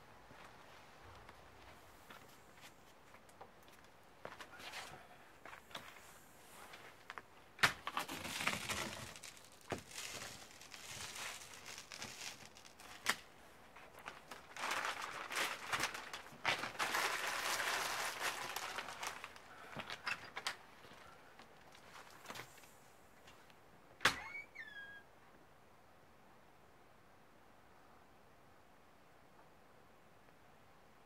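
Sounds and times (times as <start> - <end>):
plastic packaging crinkling: 7.7 - 22.5.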